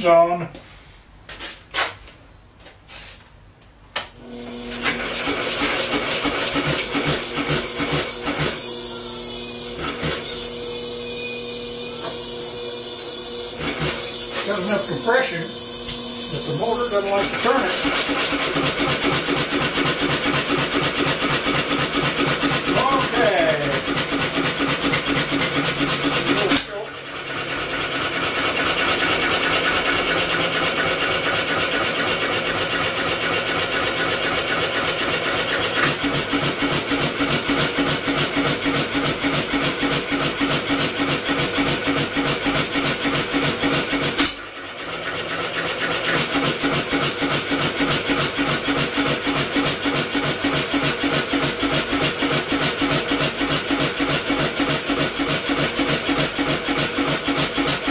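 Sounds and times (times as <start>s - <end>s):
electric motor humming: 4.2s - 26.9s
engine mechanical clatter: 4.9s - 8.6s, 16.6s - 57.9s.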